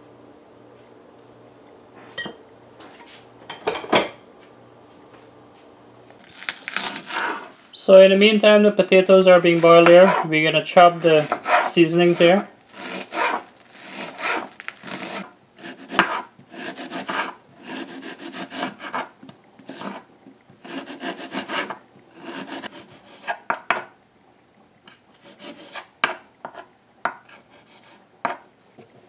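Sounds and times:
knife chopping on wooden board: 0:09.2 - 0:10.3, 0:11.0 - 0:11.7, 0:12.8 - 0:20.0, 0:20.6 - 0:23.9, 0:25.3 - 0:28.4.

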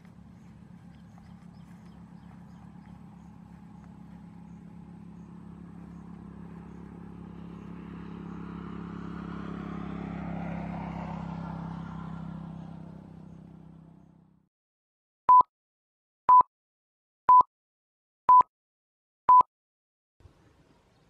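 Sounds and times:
engine drone: 0:00.0 - 0:14.4.

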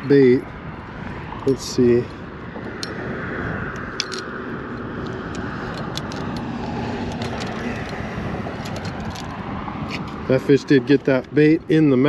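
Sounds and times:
steady background rush: 0:00.0 - 0:12.0
light metallic clicks and clinks: 0:03.8 - 0:06.5.

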